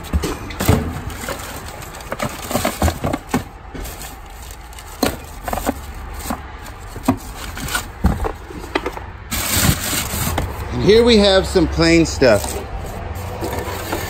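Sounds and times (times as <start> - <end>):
plastic bag and paper rustling: 0.0 - 14.0.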